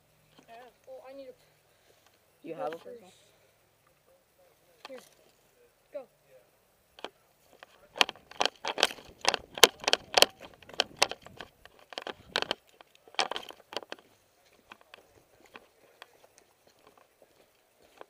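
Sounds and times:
footsteps crunching on gravel: 0:13.2 - 0:18.0.

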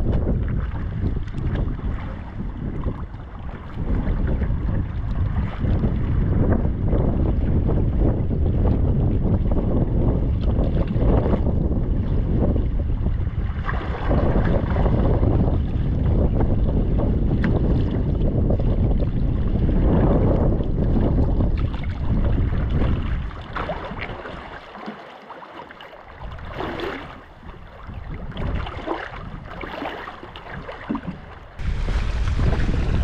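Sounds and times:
paddle strokes splashing: 0:00.0 - 0:06.2, 0:13.1 - 0:16.1, 0:17.2 - 0:33.0
wind buffeting microphone: 0:00.0 - 0:24.6, 0:26.0 - 0:33.0
waves lapping against canoe hull: 0:00.0 - 0:33.0.

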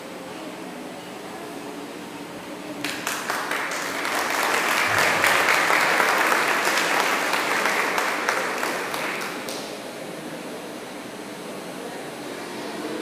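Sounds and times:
audience applauding: 0:02.8 - 0:09.8.

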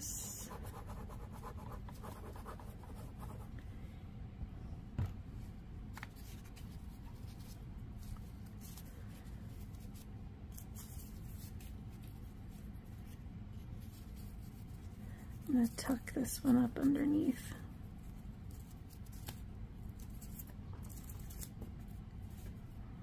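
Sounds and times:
paper rustling and rubbing: 0:05.9 - 0:22.8.

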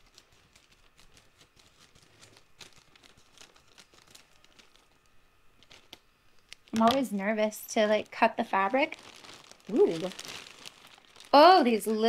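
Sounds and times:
plastic crinkling: 0:00.0 - 0:12.0.

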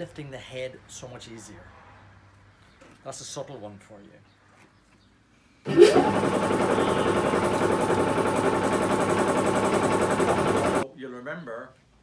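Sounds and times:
motor-driven machine rattling: 0:05.7 - 0:10.8.

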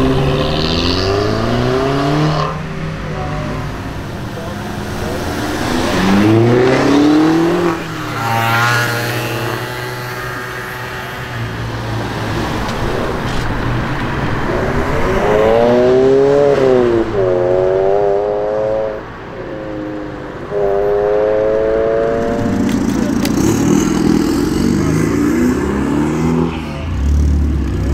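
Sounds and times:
car engines accelerating past: 0:00.0 - 0:19.3.

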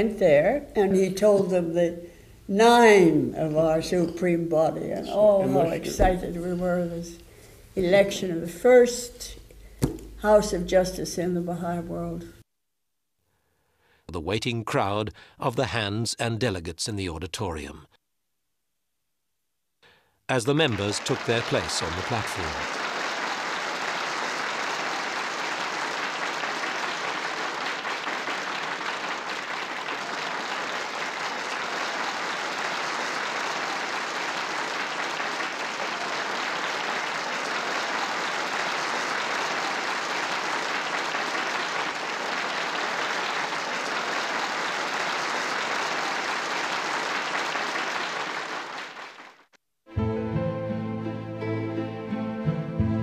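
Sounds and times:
large audience applauding: 0:20.4 - 0:49.5.

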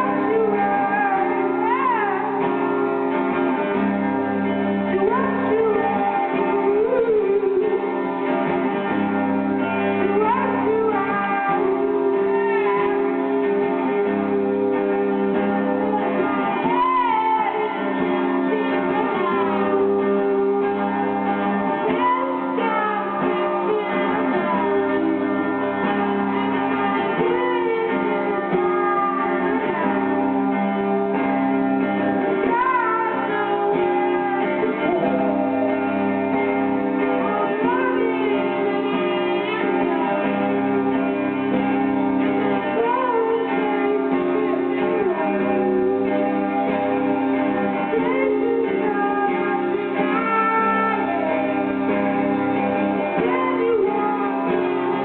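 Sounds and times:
sliding electric guitar notes: 0:00.0 - 0:55.0.

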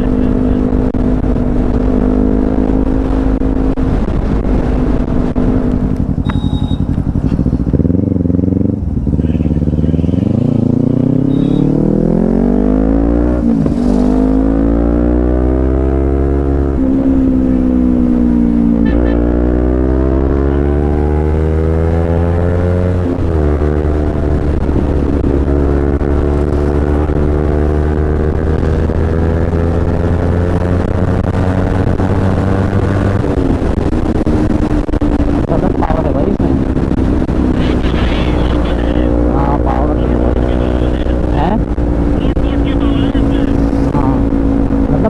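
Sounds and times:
motorcycle engine accelerating: 0:00.0 - 0:45.0.

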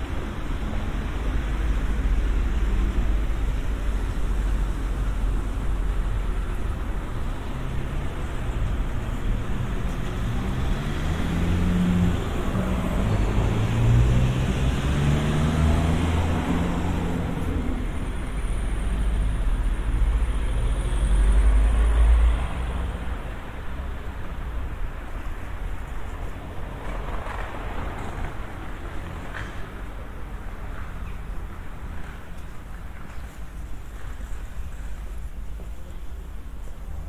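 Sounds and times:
traffic rumble: 0:00.0 - 0:37.0
car engine passing: 0:09.5 - 0:18.2.

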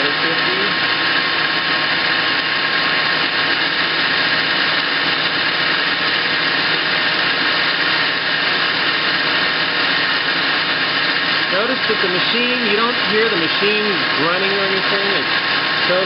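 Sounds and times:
lathe tool cutting hiss: 0:00.0 - 0:16.0
metal lathe running: 0:00.0 - 0:16.0.

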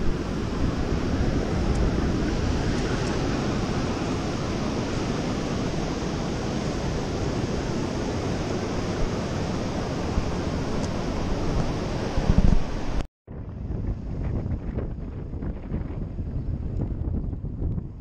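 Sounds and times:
surf breaking on beach: 0:00.0 - 0:13.0
wind noise on microphone: 0:00.0 - 0:18.0.

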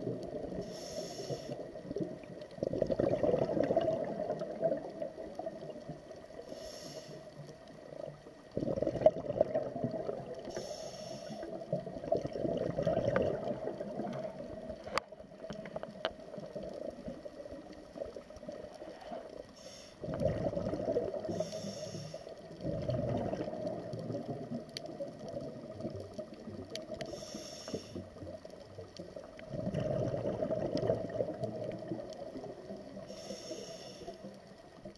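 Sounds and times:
exhaust bubbles underwater: 0:00.0 - 0:00.7, 0:01.6 - 0:06.4, 0:07.5 - 0:10.6, 0:11.4 - 0:19.4, 0:20.0 - 0:21.8, 0:22.4 - 0:27.2, 0:27.9 - 0:33.1
regulator inhale hiss: 0:00.5 - 0:01.7, 0:06.4 - 0:07.5, 0:10.4 - 0:11.7, 0:18.8 - 0:20.2, 0:21.2 - 0:22.6, 0:27.0 - 0:28.2, 0:33.0 - 0:34.5.

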